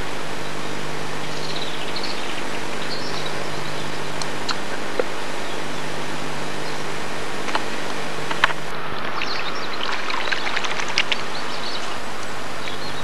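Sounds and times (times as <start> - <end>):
steady hiss and hum: 0.0 - 13.0
water splashing: 8.4 - 12.0.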